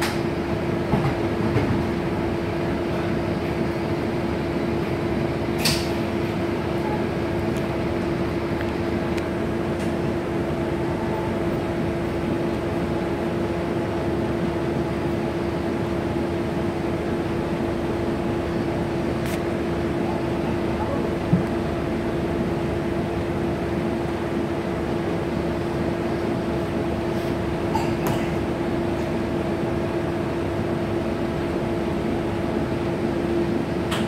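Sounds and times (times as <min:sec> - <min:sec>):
air conditioning hum: 0:00.0 - 0:34.0
bus diesel engine idling: 0:00.0 - 0:34.0
sharp click: 0:05.6 - 0:05.9.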